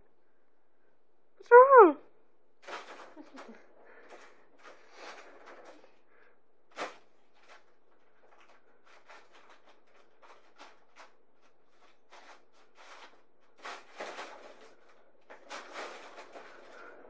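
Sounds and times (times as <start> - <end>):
packing paper crinkling: 6.7 - 17.0.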